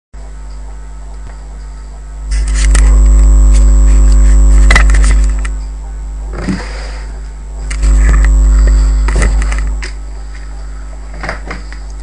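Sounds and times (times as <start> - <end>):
electrical hum: 0.2 - 12.0
clicks and crackles: 2.3 - 5.7.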